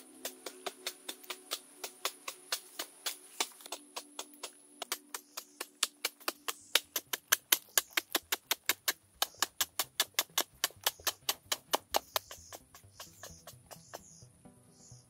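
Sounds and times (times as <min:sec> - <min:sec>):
high insect drone: 0:00.0 - 0:06.9
digging tool chopping into earth: 0:00.0 - 0:14.2.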